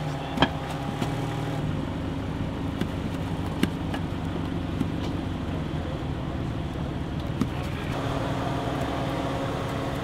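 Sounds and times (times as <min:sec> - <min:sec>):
car engine idling: 0:00.0 - 0:10.0.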